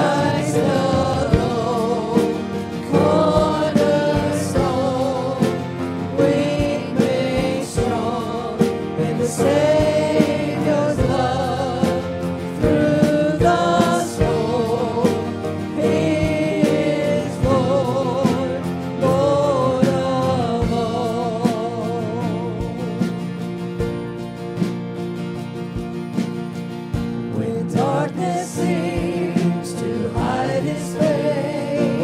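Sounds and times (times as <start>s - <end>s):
group singing in harmony: 0.0s - 23.4s, 27.2s - 32.0s
acoustic guitar: 0.0s - 32.0s.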